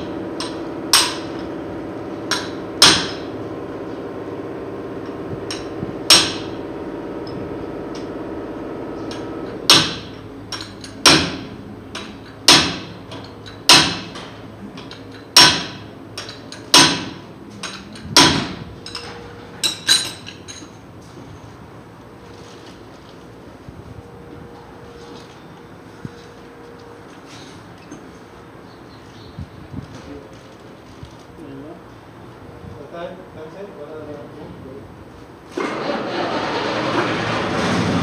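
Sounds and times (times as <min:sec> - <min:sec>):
hammer striking metal: 0:00.4 - 0:01.4, 0:02.3 - 0:03.3, 0:05.5 - 0:06.5, 0:09.1 - 0:14.2, 0:15.4 - 0:19.0.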